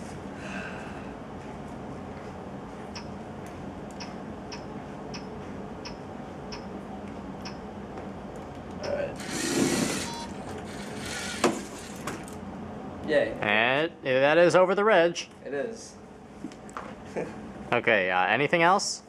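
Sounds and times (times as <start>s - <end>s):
motors and plastic gears whirring: 9.2s - 12.4s.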